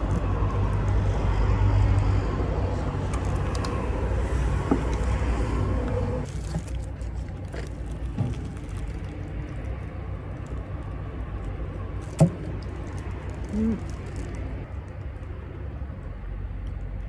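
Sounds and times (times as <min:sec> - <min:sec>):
vehicle engine rumbling: 0:00.0 - 0:17.0
plastic bag crinkling: 0:06.2 - 0:11.0, 0:12.0 - 0:14.7.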